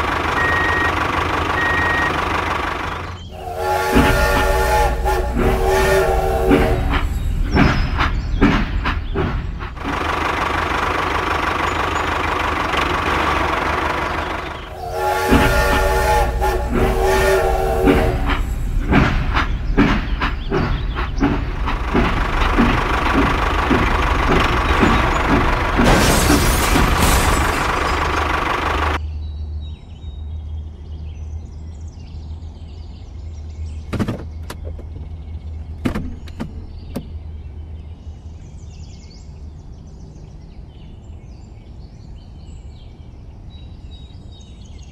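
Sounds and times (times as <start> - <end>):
toy train whistle: 0.0 - 2.5, 3.3 - 7.1, 14.6 - 18.6
rhythmic chugging clicks: 0.0 - 25.9
toy crash noise: 23.8 - 29.0.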